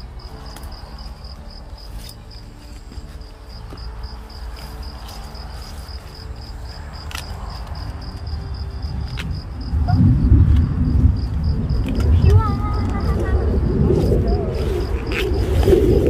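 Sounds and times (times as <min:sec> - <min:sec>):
insect chirping: 0:00.0 - 0:16.0
low rumble: 0:03.2 - 0:16.0.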